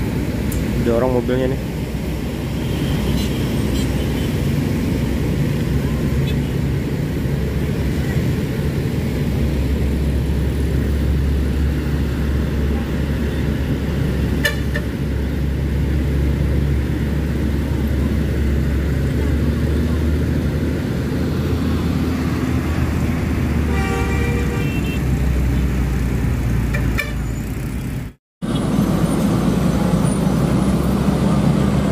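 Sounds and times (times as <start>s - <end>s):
diesel truck engine drone: 0.0s - 31.9s
motorcycles in traffic: 0.0s - 31.9s.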